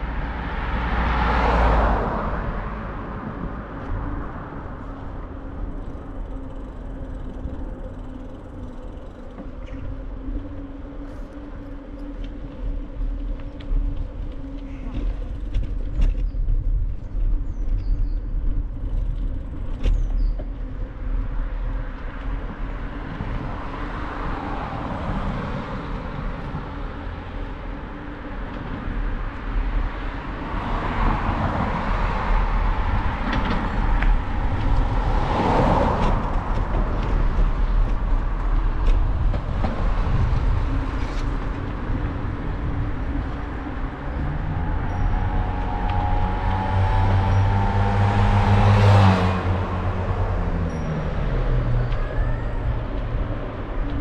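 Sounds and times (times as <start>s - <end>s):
car passing by: 0.0s - 4.0s, 28.6s - 54.0s
wind and road noise: 0.0s - 54.0s.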